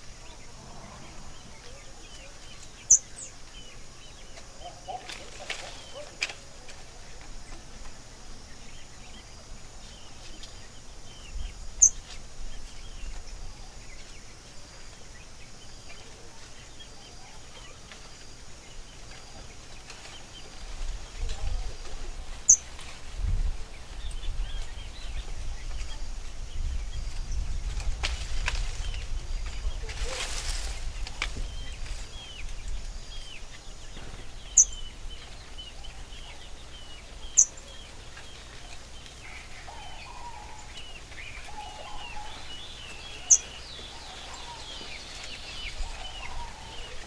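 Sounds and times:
low rumble: 0.0s - 2.8s
faint bird chirps: 0.1s - 6.2s, 21.1s - 22.9s, 31.5s - 47.0s.

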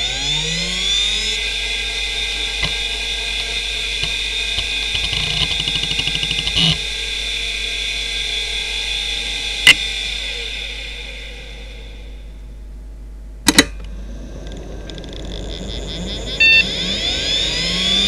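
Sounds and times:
hard drive motor whine: 0.0s - 12.7s, 13.8s - 18.0s
hard drive clunk: 13.4s - 13.9s.

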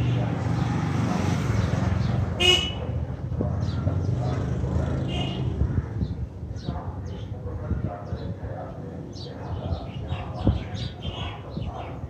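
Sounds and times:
motorcycle engine passing by: 0.0s - 2.4s, 3.6s - 5.8s
motorcycle horn toot: 2.4s - 2.8s.

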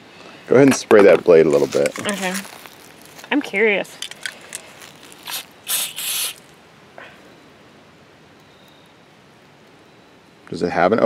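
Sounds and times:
aerosol can hissing: 5.2s - 6.4s.

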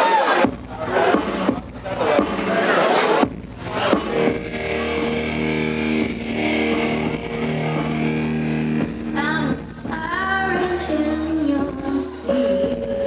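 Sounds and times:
bass guitar: 0.4s - 13.0s
electric guitar chords: 3.3s - 13.0s
woman singing: 8.6s - 13.0s.

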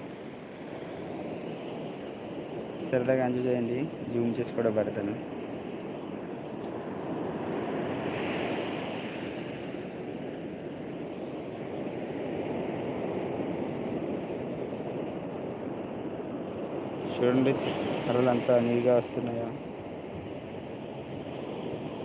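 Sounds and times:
sea surf breaking on sand: 6.7s - 22.0s.

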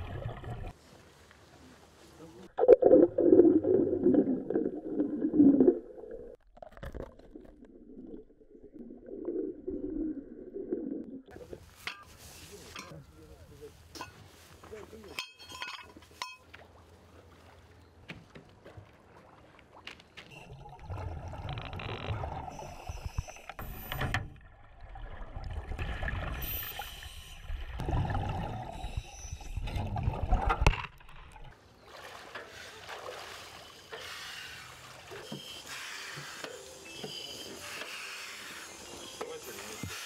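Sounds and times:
underwater bubbling and rushing: 0.0s - 0.8s, 2.5s - 11.3s, 20.3s - 31.6s.

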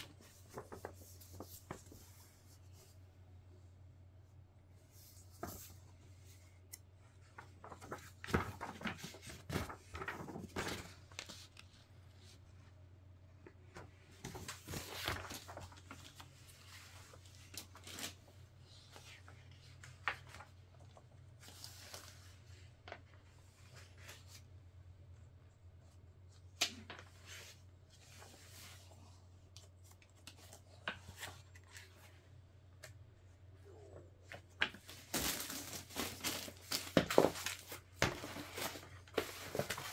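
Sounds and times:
packaging rustling and crinkling: 34.7s - 39.9s.

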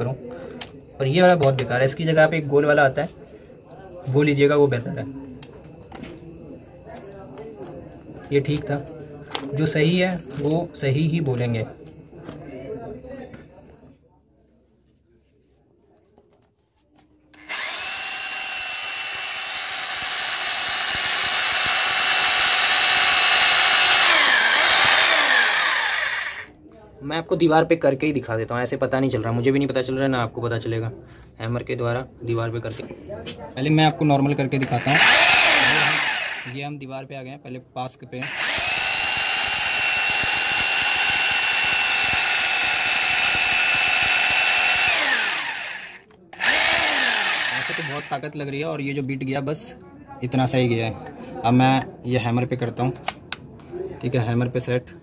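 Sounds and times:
drill bit grinding into brick: 17.4s - 26.5s, 34.6s - 36.6s, 38.2s - 48.2s
electric drill motor whine: 17.4s - 26.5s, 34.8s - 36.6s, 38.2s - 48.2s.

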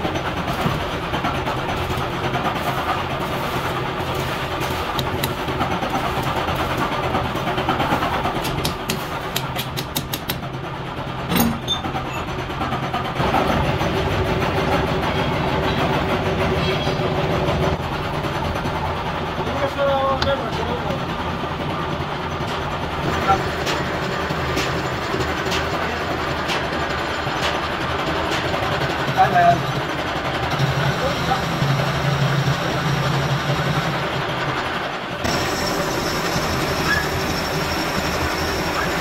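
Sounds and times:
machinery humming: 13.0s - 39.0s.

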